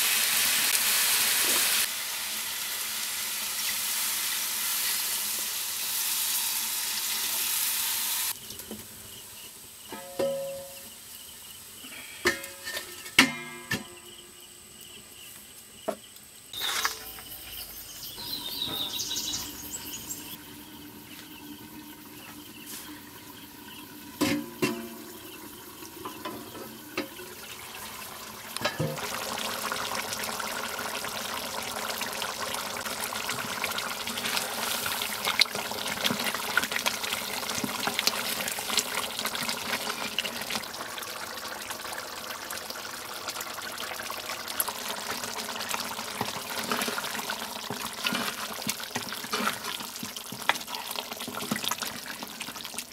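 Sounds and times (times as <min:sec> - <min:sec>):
curry bubbling and sputtering: 0:20.7 - 0:52.9.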